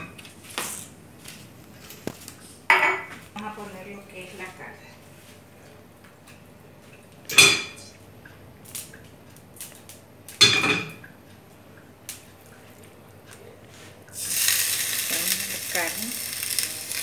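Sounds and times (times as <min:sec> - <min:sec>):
metallic cookware clangs: 0:07.3 - 0:07.8, 0:10.4 - 0:11.0.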